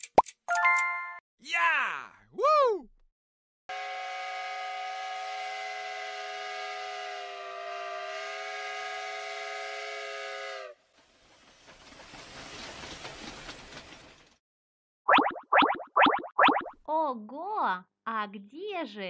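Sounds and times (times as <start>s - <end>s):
steam whistle blast: 3.7s - 10.8s
train rumbling and clattering past: 10.8s - 14.4s.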